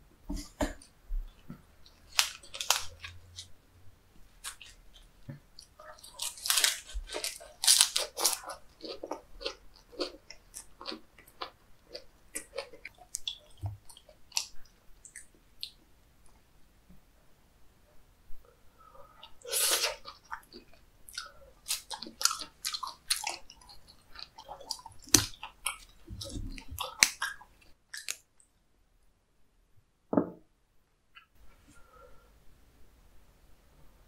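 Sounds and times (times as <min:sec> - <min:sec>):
crisp chewing crunches: 0:01.8 - 0:03.5, 0:04.4 - 0:15.8, 0:19.2 - 0:28.2.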